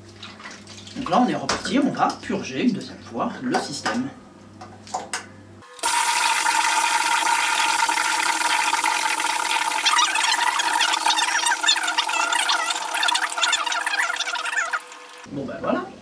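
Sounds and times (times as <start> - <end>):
crackling bubbling: 5.8 - 15.3.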